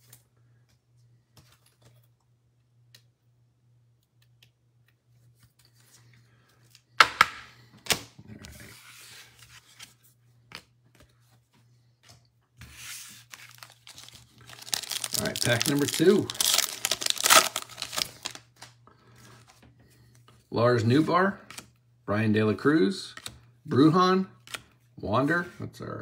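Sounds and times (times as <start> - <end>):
foil wrapper crinkling: 13.2 - 18.7.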